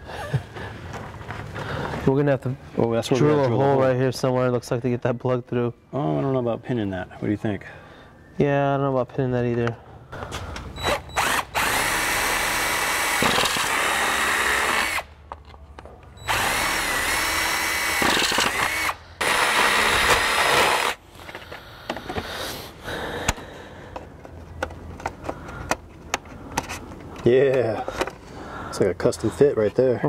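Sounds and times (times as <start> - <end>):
cordless drill boring plastic: 10.8 - 15.0, 16.2 - 21.0.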